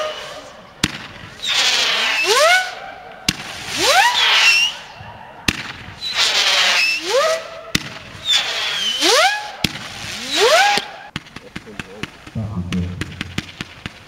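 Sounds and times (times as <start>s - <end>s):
firework hiss and rising whistle: 1.4s - 2.8s, 3.5s - 5.0s, 6.0s - 10.9s
firework launch pop: 12.3s - 14.0s.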